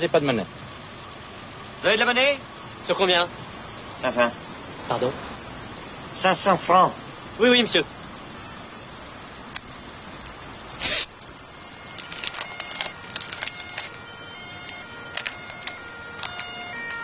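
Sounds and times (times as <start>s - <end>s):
paper crinkling: 10.8s - 14.0s, 14.7s - 16.6s.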